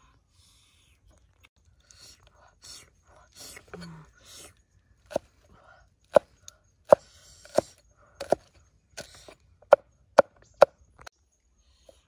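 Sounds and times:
cleaver chopping on wooden block: 6.9 - 10.8.

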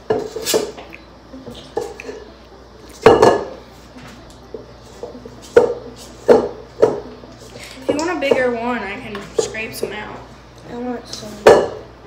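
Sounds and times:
spoon knocking and scraping a bowl: 4.5 - 7.1.

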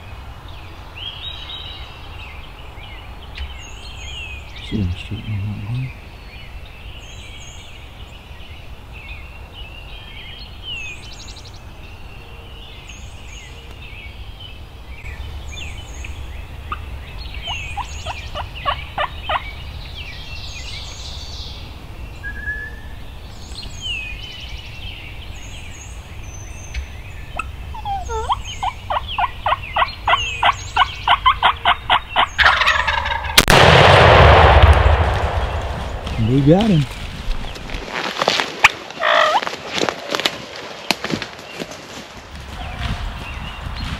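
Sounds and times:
songbirds chirping: 0.0 - 43.9
turkey gobbling: 27.4 - 33.5, 39.0 - 39.5
shotgun blast: 33.4 - 36.8.

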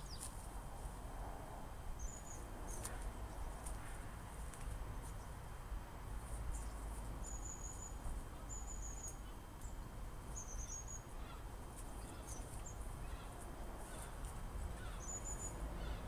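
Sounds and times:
small bird chirping: 0.0 - 0.3, 2.0 - 3.6, 6.5 - 16.0.

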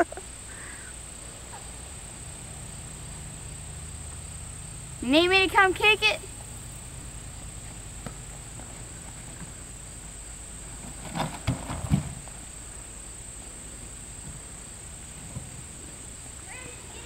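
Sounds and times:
insect chirring: 0.0 - 17.0
knocks and rustles: 10.6 - 12.5, 14.2 - 15.7.

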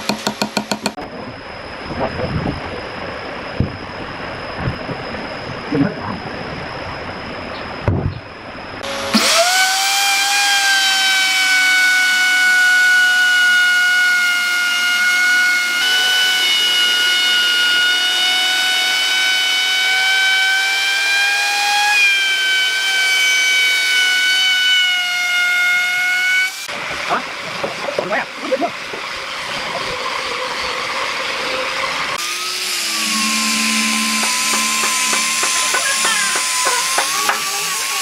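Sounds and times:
electric router whining: 8.7 - 27.1, 28.8 - 38.0.

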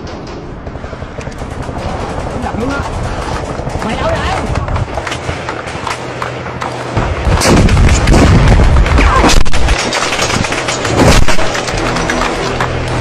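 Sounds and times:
heavy low rumble: 0.0 - 13.0
gunfire: 1.2 - 12.6
explosions: 7.0 - 11.7.

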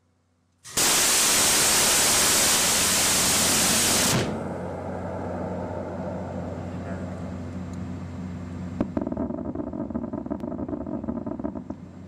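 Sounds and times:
low steady hum: 3.0 - 12.0.

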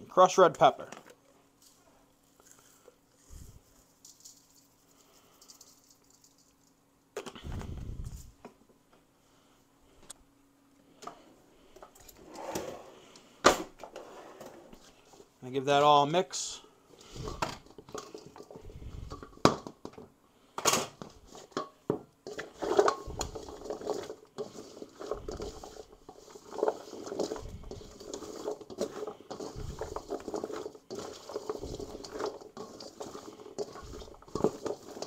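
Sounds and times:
vegetables tumbling in metal bowl: 2.4 - 8.4, 15.7 - 35.0
spatula scraping and knocking bowl: 22.3 - 35.0.

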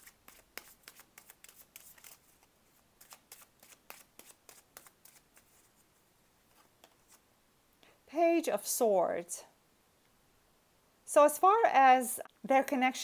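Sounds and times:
cards being shuffled: 0.0 - 5.8.

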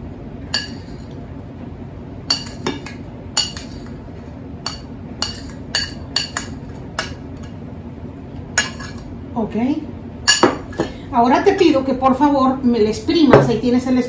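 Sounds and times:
metal spoon clinking on ceramic: 2.3 - 3.9, 4.6 - 7.6, 10.3 - 10.6.

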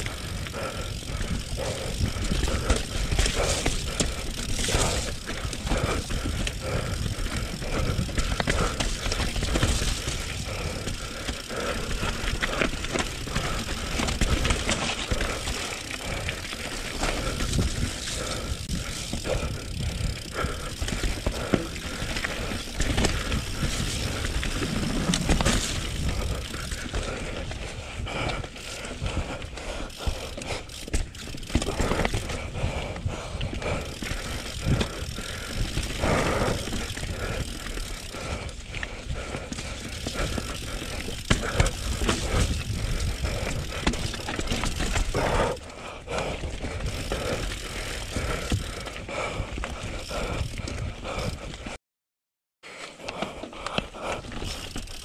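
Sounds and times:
bike rattling: 0.0 - 51.8, 52.9 - 55.0
tyres over dirt and stones: 1.0 - 27.7
bike knocking on rocks: 39.8 - 42.8.

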